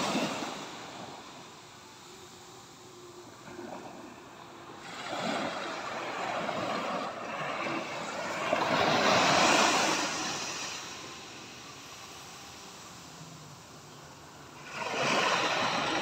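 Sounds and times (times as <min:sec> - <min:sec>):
small waves breaking on beach: 0:00.0 - 0:16.0.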